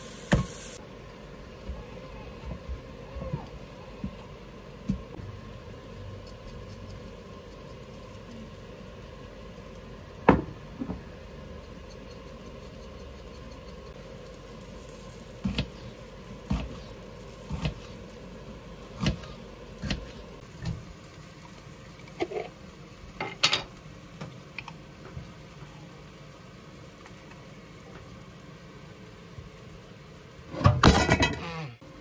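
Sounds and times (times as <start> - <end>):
steady hum: 0.0 - 1.5.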